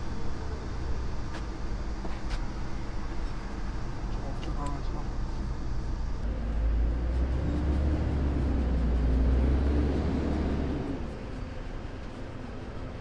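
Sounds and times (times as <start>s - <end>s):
passing vehicle rumble: 6.2s - 12.0s.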